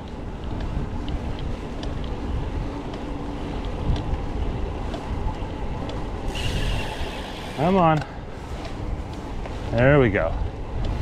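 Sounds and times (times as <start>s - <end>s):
faint light ticks: 0.0s - 2.2s, 2.8s - 4.2s, 10.8s - 11.0s
wind buffeting microphone: 0.0s - 11.0s.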